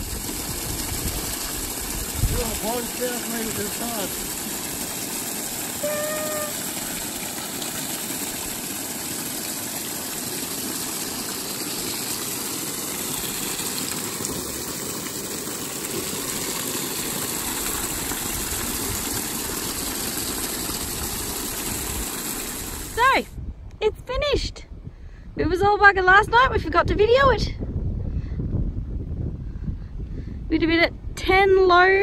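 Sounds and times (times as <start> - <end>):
water gushing onto plastic liner: 0.0 - 23.2
short pitched call: 5.8 - 6.6.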